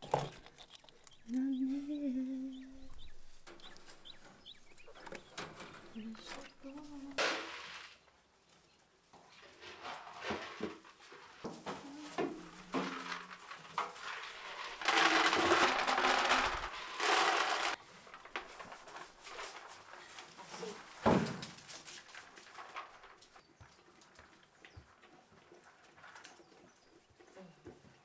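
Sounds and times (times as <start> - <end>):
dry feed pouring into bucket: 7.2 - 8.0, 9.6 - 11.6, 12.2 - 20.1.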